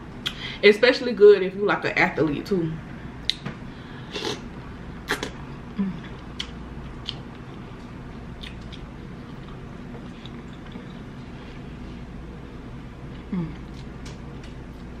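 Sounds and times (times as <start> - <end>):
low steady hum: 0.0 - 15.0
chewing shrimp: 6.0 - 11.6, 13.0 - 15.0.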